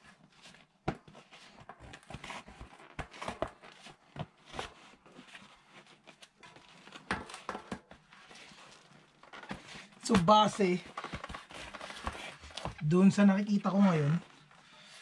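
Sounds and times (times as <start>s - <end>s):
rubber scuffing against rim: 7.0s - 12.8s.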